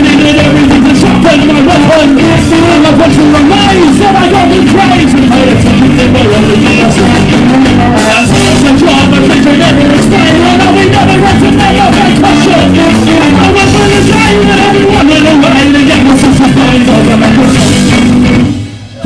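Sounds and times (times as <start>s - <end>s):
ska band playing live: 0.0s - 19.0s.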